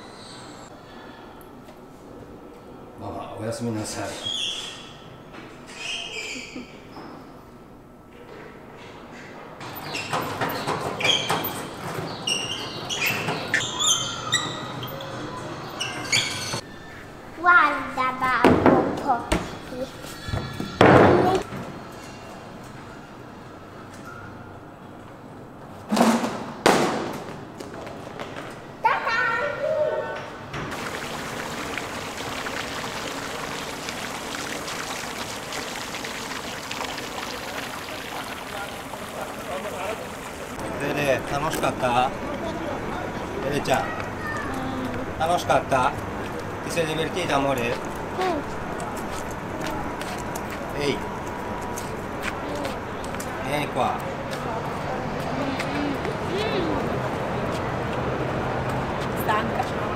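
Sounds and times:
water lapping against boats: 30.7s - 42.9s
busy hall background din: 40.5s - 59.9s.

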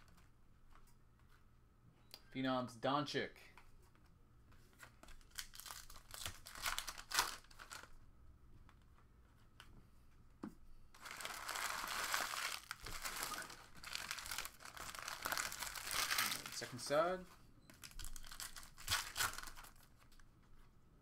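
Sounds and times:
foil wrappers crinkling and tearing: 5.2s - 7.9s, 11.0s - 17.0s, 17.8s - 19.9s.

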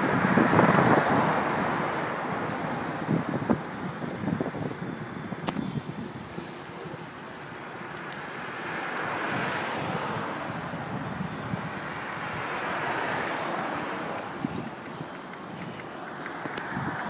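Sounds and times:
passing road traffic: 0.0s - 17.0s.

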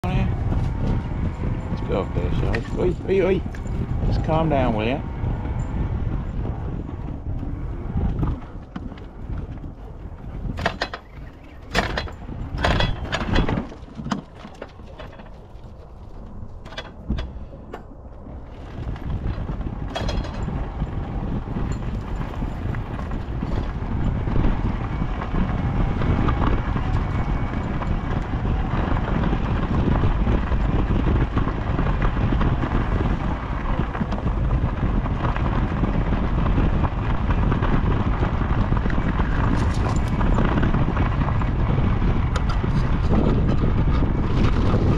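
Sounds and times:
scooter tyres rolling on gravel: 0.0s - 44.9s
wooden gate knocking and clanking: 10.5s - 15.5s, 19.9s - 20.5s.

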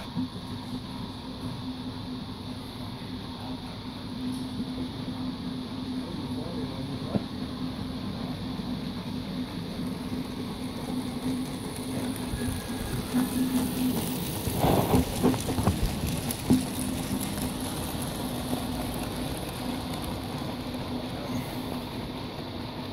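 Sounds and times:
steady low hum: 0.0s - 22.9s
model train wheels clicking: 5.9s - 22.9s.

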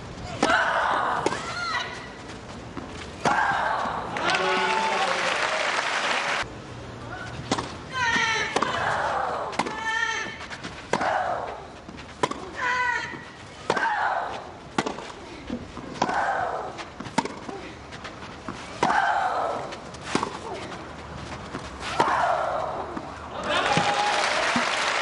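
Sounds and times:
racket striking ball: 7.5s - 11.5s, 12.2s - 14.1s, 14.7s - 15.1s, 15.8s - 17.6s, 18.8s - 20.6s.

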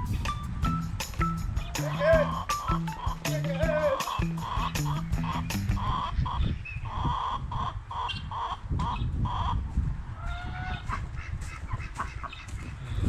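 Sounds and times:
geese honking: 1.7s - 6.4s.

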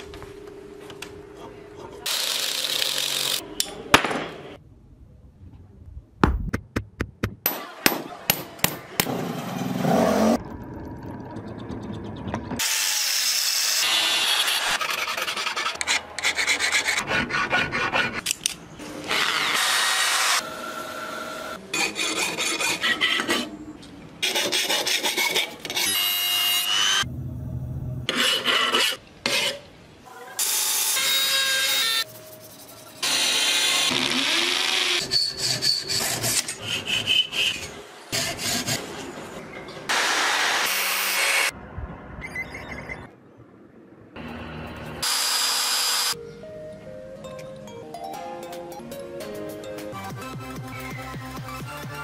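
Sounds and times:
filing steel: 13.8s - 18.3s, 21.7s - 23.5s, 24.2s - 26.8s, 34.6s - 38.9s
sawing steel: 21.2s - 23.5s, 24.2s - 27.1s, 28.1s - 29.6s, 30.9s - 39.0s.

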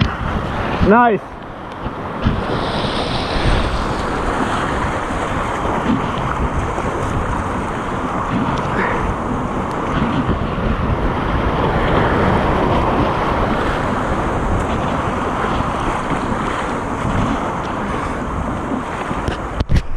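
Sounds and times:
wind buffeting microphone: 0.0s - 19.9s
whitewater rushing: 2.0s - 8.3s.

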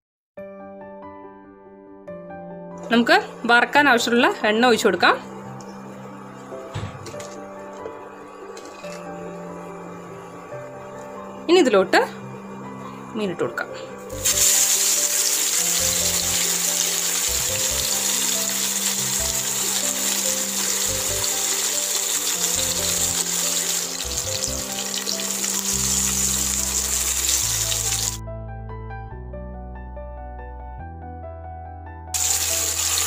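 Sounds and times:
soft background music: 0.4s - 33.0s
fish sizzling in hot oil: 14.2s - 28.2s, 32.2s - 33.0s.

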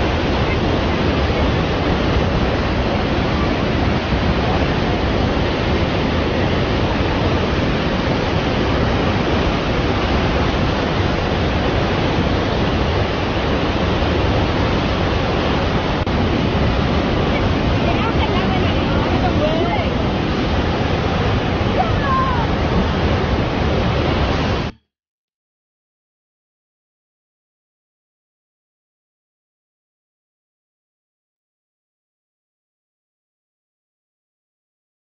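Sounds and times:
waterfall rushing over rocks: 0.0s - 24.8s.

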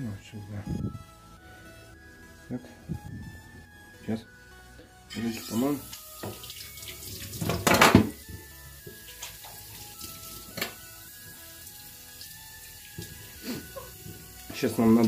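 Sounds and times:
cutting board clattering in metal sink: 7.4s - 8.2s.

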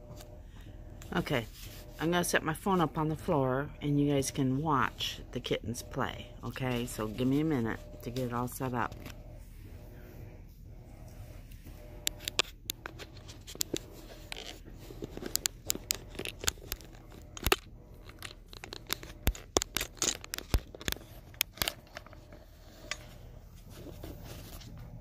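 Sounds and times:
phone handling clicks and scrapes: 5.8s - 25.0s.

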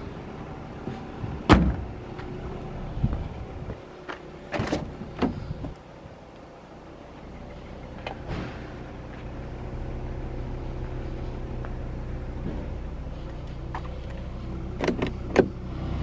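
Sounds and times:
dull thud: 1.4s - 1.9s
car boot lid thump: 1.5s - 1.9s.

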